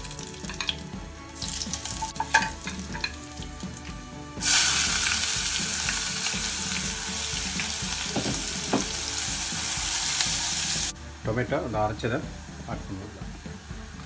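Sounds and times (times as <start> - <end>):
onion sizzling in oil: 0.0 - 11.0
hot oil crackling: 0.0 - 14.0
wooden spoon knocking on pan: 1.4 - 3.8, 7.3 - 10.0.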